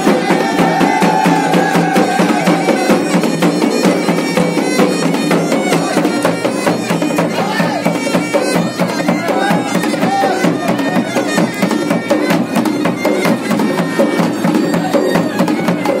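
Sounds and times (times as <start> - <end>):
bagpipe melody over drone: 0.0 - 16.0
drums beating fast rhythm: 0.0 - 16.0.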